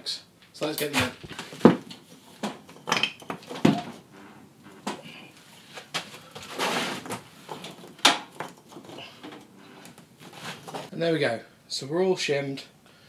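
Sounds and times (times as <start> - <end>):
shim scraping: 0.9 - 10.9.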